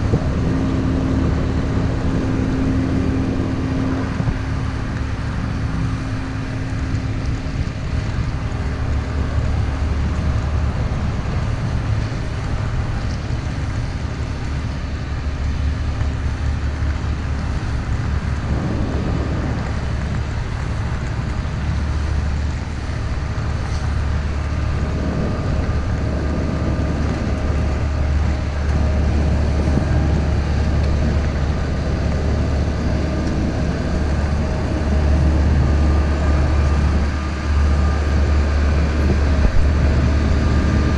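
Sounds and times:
airliner cabin engine rumble: 0.0s - 40.9s.

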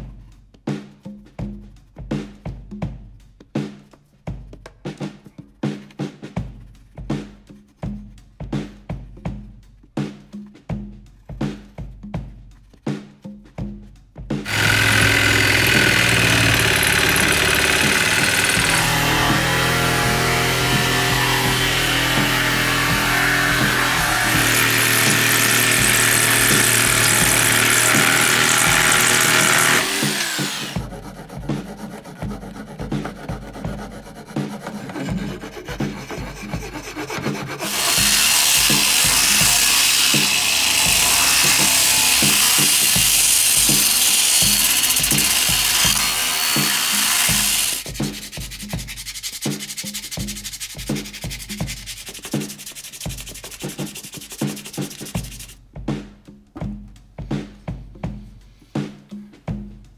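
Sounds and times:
background music with steady beat: 0.0s - 59.9s
jigsaw cutting wood: 14.4s - 48.3s, 52.0s - 55.5s
angle grinder sanding wood: 14.4s - 55.6s
sandpaper rubbing wood by hand: 14.4s - 55.6s.

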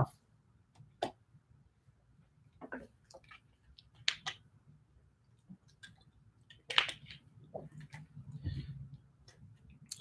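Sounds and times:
soft breathy sound: 8.2s - 9.1s.

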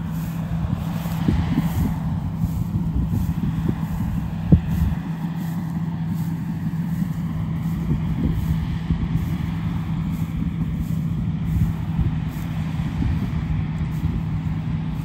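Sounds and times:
harvester diesel engine rumbling: 0.0s - 15.0s.

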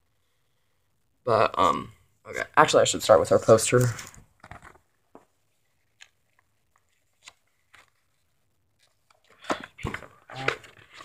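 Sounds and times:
paper rustling and crinkling: 3.6s - 11.0s.

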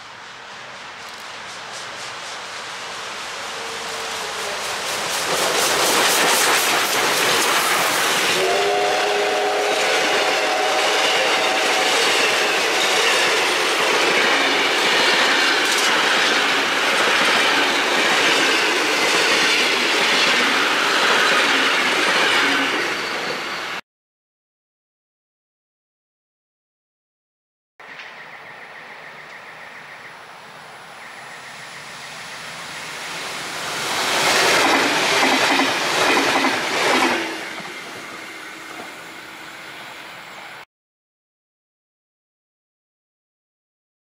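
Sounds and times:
steam locomotive exhaust beating: 0.0s - 22.8s, 31.6s - 40.0s
steam chime whistle: 3.5s - 5.0s, 8.2s - 13.7s.

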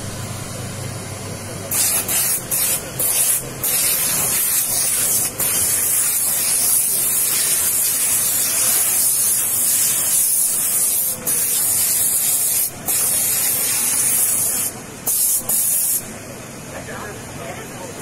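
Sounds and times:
steam nozzle hissing: 1.7s - 16.1s.

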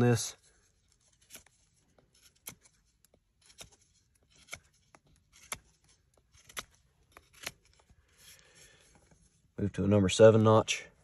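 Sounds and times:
knife cutting wooden stick: 0.9s - 7.9s.

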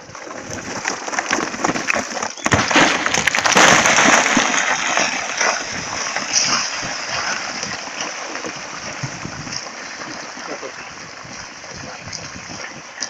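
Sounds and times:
rubble clattering down scree: 0.0s - 9.2s
rock crashing and shattering: 0.0s - 10.2s.

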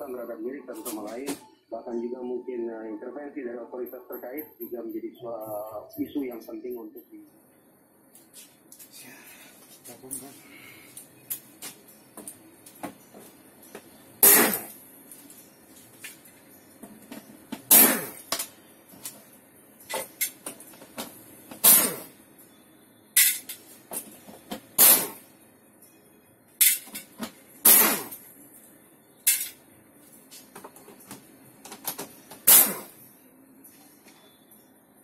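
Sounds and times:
compressed air blow gun hissing: 32.5s - 32.9s.

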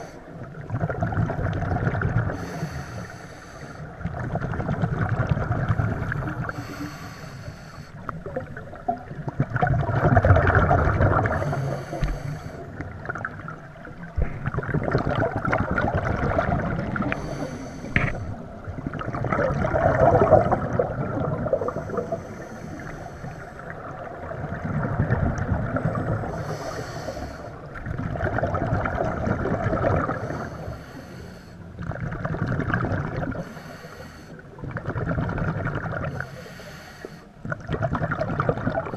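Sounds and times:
exhaled bubbles rushing: 0.4s - 2.5s, 3.9s - 6.6s, 8.1s - 22.2s, 23.6s - 26.4s, 27.6s - 30.4s, 31.8s - 33.5s, 34.6s - 36.2s, 37.4s - 38.9s
regulator inhale hiss: 2.3s - 4.0s, 6.1s - 8.1s, 11.3s - 12.8s, 17.1s - 18.4s, 21.5s - 23.7s, 26.2s - 27.7s, 30.1s - 31.7s, 33.4s - 34.6s, 36.1s - 37.4s.

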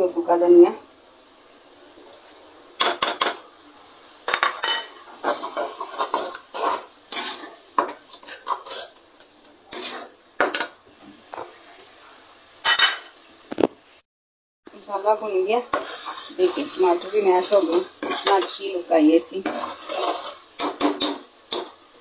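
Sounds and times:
faint sizzle: 0.0s - 14.0s, 14.7s - 22.0s
ladle scraping metal pan: 4.4s - 9.0s, 9.7s - 10.7s, 15.8s - 18.6s, 19.4s - 21.3s.

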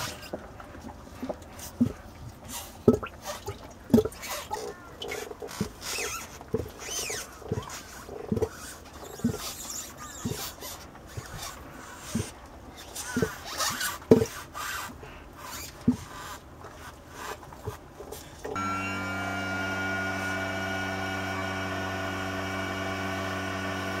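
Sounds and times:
electric trim motor humming: 18.6s - 24.0s.

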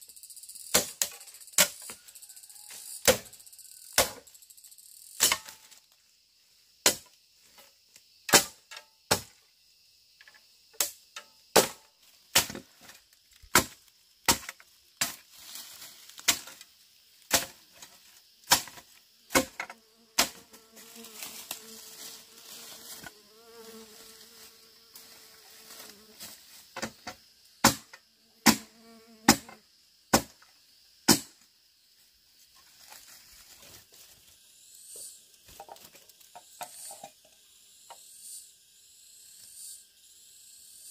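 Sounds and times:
high insect drone: 0.0s - 40.9s
tool chopping or knocking: 4.0s - 4.2s, 18.5s - 20.4s, 26.8s - 28.7s, 29.3s - 30.4s
fly buzzing: 18.9s - 26.6s, 28.1s - 29.6s.

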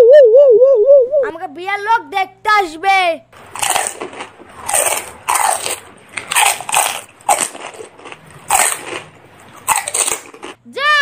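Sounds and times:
crunching crisp shells: 3.4s - 10.6s.

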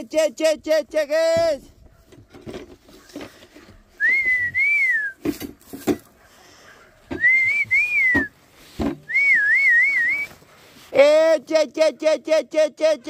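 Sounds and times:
man whistling: 4.0s - 5.2s, 7.1s - 8.3s, 9.0s - 10.4s.

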